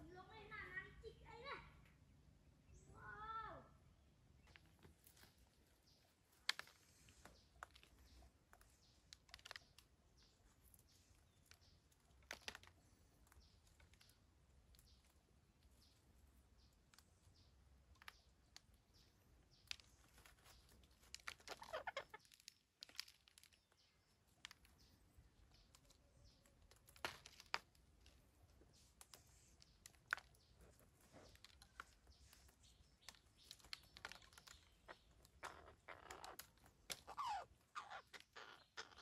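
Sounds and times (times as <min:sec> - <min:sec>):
parakeets calling and chattering: 0:21.3 - 0:22.6, 0:30.2 - 0:39.0.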